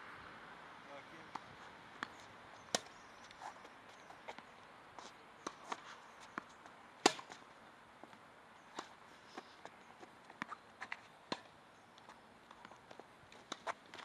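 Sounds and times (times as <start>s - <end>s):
tennis ball struck by rackets: 1.3s - 3.0s, 5.4s - 7.4s, 10.4s - 11.6s
tennis ball bouncing: 1.3s - 3.6s, 4.2s - 7.4s, 9.6s - 14.0s.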